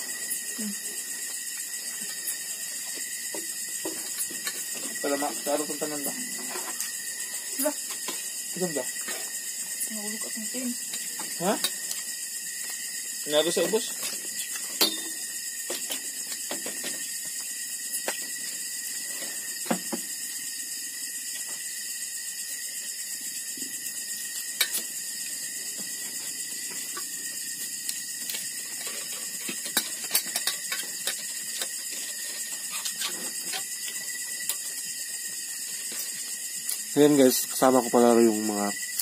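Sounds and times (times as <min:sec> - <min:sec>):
steady high hiss: 0:00.0 - 0:39.0
spoons and dishes clinking: 0:14.5 - 0:15.2.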